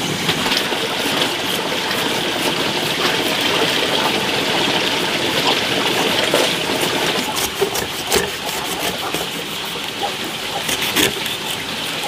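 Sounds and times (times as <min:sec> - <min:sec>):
knife crunching through pineapple skin: 0:06.4 - 0:12.0.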